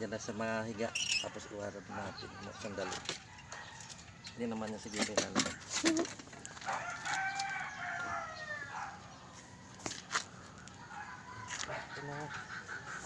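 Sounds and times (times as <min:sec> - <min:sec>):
rooster crowing: 0:06.6 - 0:10.2, 0:10.8 - 0:12.2.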